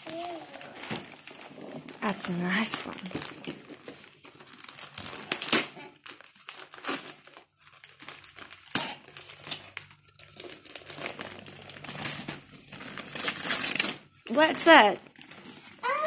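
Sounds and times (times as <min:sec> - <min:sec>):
wrapping paper crinkling and tearing: 0:00.0 - 0:16.0.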